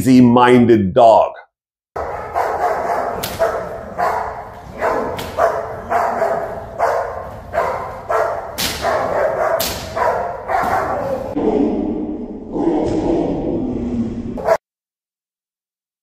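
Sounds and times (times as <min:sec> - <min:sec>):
dog barking: 0:02.0 - 0:11.4, 0:14.4 - 0:14.6.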